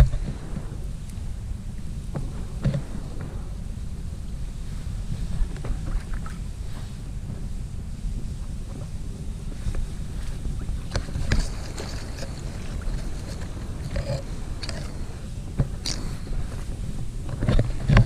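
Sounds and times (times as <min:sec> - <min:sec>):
wind buffeting microphone: 0:00.0 - 0:18.0
rustles and clicks from movement: 0:08.7 - 0:18.0.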